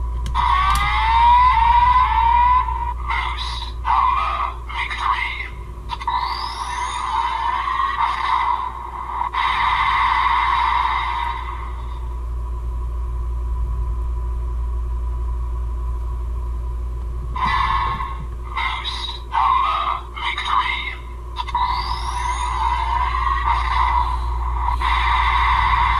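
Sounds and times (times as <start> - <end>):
low hum: 0.0 - 25.9
toy electronic sound effects: 0.4 - 8.7, 17.4 - 25.9.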